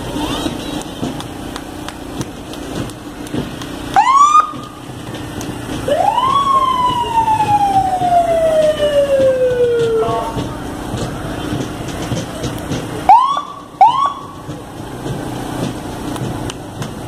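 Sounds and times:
vehicle engines running: 0:00.0 - 0:17.0
fire truck siren: 0:03.9 - 0:04.8, 0:05.8 - 0:11.0, 0:13.0 - 0:14.6.

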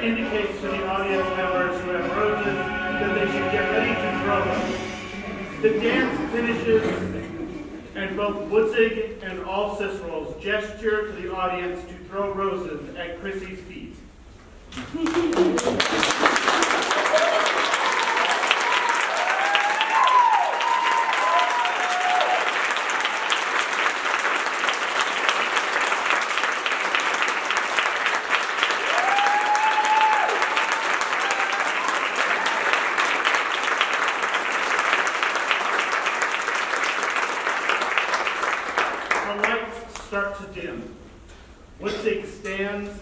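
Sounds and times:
audience applauding: 0:14.7 - 0:39.7
cheers: 0:14.9 - 0:23.5, 0:28.6 - 0:33.3.

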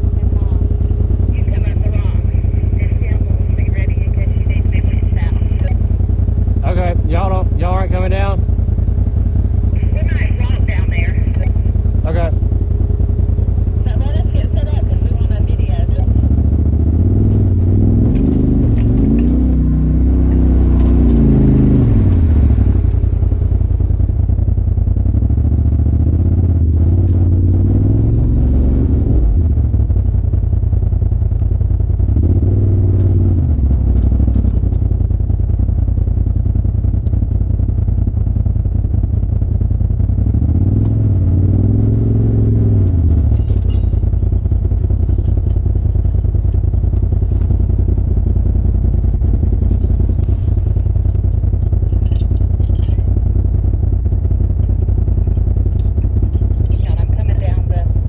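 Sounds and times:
turbocharged engine revving: 0:00.0 - 0:37.3, 0:39.6 - 0:58.0
rocks and chassis clattering: 0:17.2 - 0:19.7, 0:43.1 - 0:47.8, 0:48.9 - 0:57.6.

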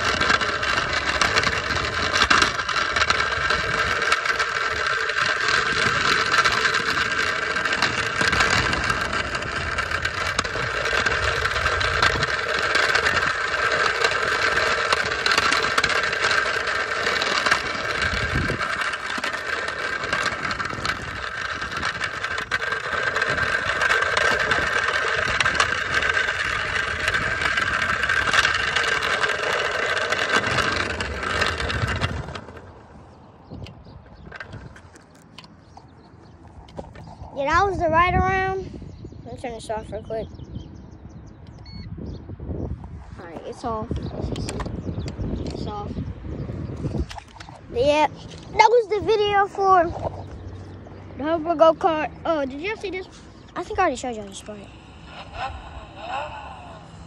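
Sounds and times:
electric motor whine: 0:00.0 - 0:32.9, 0:53.7 - 0:57.0
small wheels rolling on asphalt: 0:00.0 - 0:57.0.

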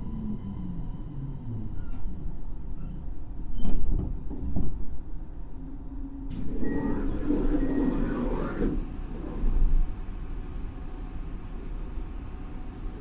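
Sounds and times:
train interior rumble: 0:00.0 - 0:13.0.

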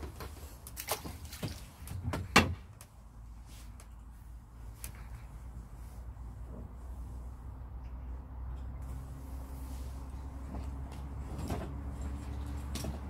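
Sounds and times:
landing net knocks and rustles: 0:10.5 - 0:13.0.

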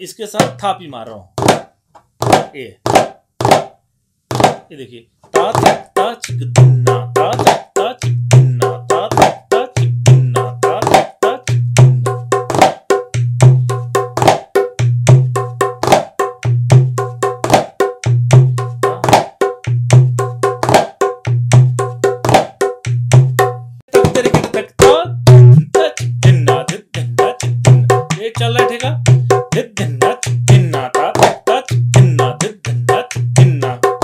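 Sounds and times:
hand drum slaps and rolls: 0:02.2 - 0:03.7, 0:04.3 - 0:04.6, 0:14.2 - 0:15.2, 0:15.8 - 0:17.8, 0:20.6 - 0:21.0, 0:21.7 - 0:25.0.

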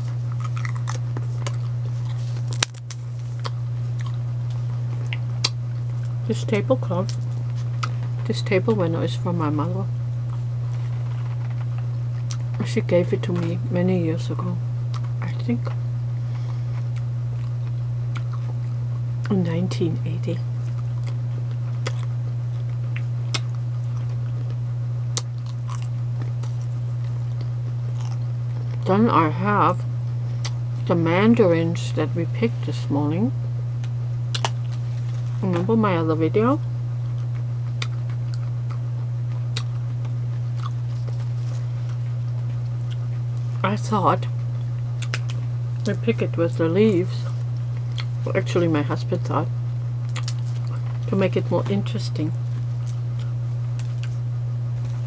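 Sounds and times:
crispbread crunching: 0:00.0 - 0:06.2, 0:20.5 - 0:28.9, 0:50.0 - 0:51.8
cracker crunching: 0:00.0 - 0:08.8, 0:10.1 - 0:13.6, 0:14.8 - 0:19.4, 0:20.4 - 0:28.9, 0:33.6 - 0:35.7, 0:36.6 - 0:43.6, 0:44.3 - 0:48.2, 0:49.6 - 0:55.0
steady low hum: 0:00.0 - 0:55.0.

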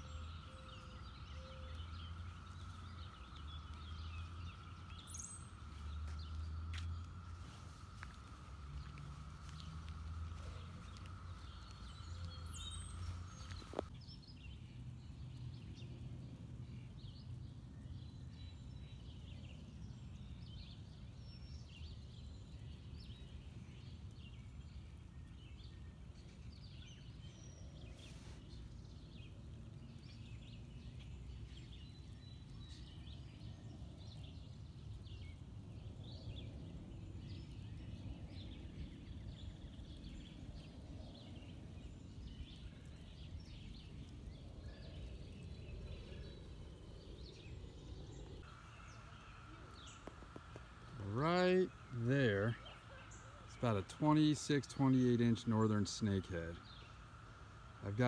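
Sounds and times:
low rumble: 0:00.0 - 0:13.9
high bird chirps: 0:00.0 - 0:14.0.

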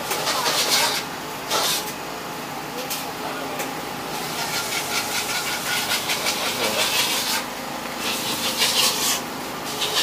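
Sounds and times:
rasping scraping strokes: 0:00.1 - 0:01.9, 0:04.3 - 0:10.0.

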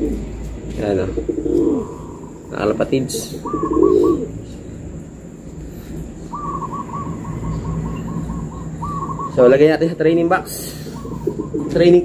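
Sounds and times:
pigeon cooing: 0:00.0 - 0:04.6, 0:05.5 - 0:12.0
bird piping short notes: 0:03.2 - 0:04.4, 0:06.2 - 0:09.6.

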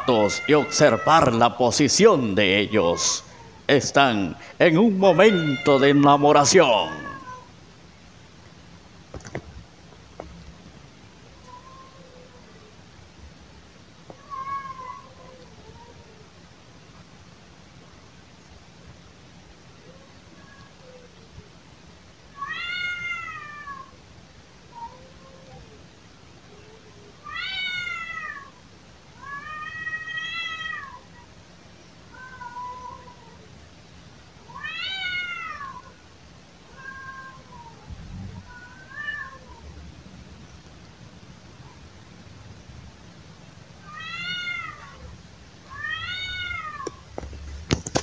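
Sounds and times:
cat yowling: 0:00.0 - 0:01.4, 0:02.4 - 0:03.7, 0:04.9 - 0:07.5, 0:11.4 - 0:12.7, 0:14.1 - 0:16.3, 0:22.3 - 0:24.0, 0:24.7 - 0:25.8, 0:26.5 - 0:31.3, 0:32.1 - 0:33.5, 0:34.4 - 0:36.0, 0:36.7 - 0:39.8, 0:43.8 - 0:47.0.

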